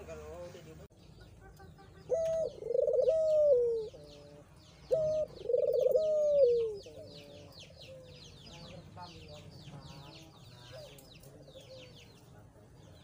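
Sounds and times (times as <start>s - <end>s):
small birds chirping: 0.0s - 13.0s
dove cooing: 2.0s - 8.3s.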